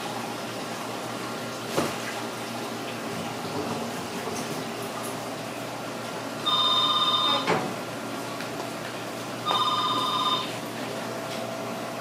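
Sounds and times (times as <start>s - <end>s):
electronic telephone ringing: 6.4s - 7.5s, 9.4s - 10.6s.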